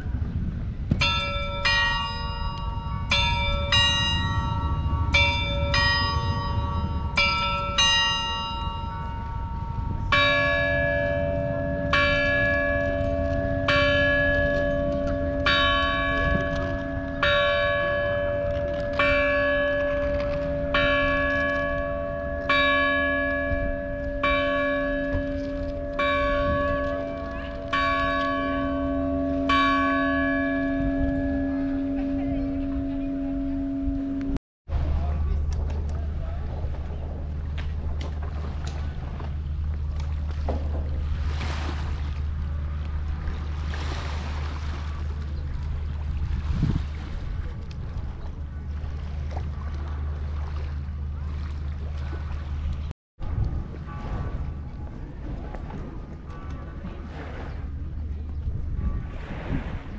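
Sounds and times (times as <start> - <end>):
higher church bell struck quickly: 1.0 - 34.4
deep bell tolling: 1.0 - 35.3, 53.2 - 57.2.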